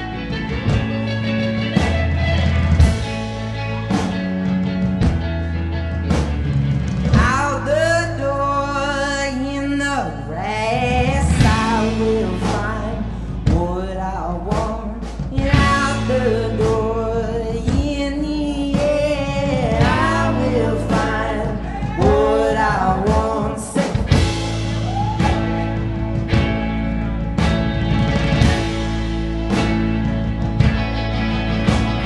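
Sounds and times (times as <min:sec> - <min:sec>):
rock band with electric guitar: 0:00.0 - 0:32.0
man singing: 0:07.2 - 0:24.2.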